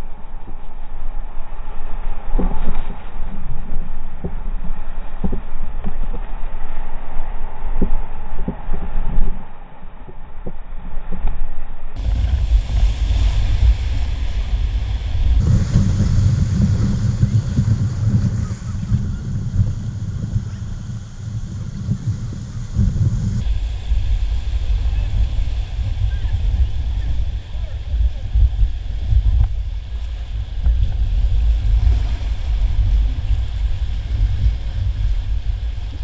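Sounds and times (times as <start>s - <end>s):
wind rumble on microphone: 0.0s - 36.0s
water and paddles splashing: 12.0s - 36.0s
whitewater rapids rushing: 12.0s - 36.0s.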